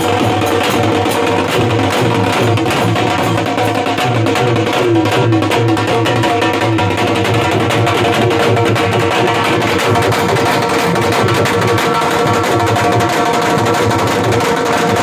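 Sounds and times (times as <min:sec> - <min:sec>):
drums beaten with sticks: 0:00.0 - 0:15.0.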